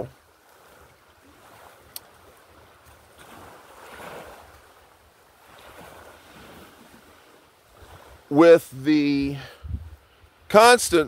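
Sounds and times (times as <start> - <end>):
wind buffeting microphone: 9.4 - 11.0.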